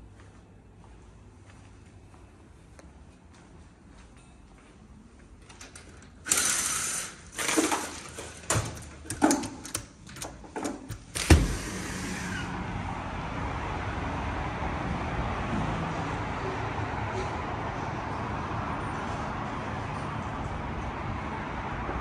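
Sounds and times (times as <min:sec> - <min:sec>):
road traffic: 0:04.8 - 0:22.0
blind slats rattling and clacking: 0:07.3 - 0:12.2
door thump: 0:10.9 - 0:11.8.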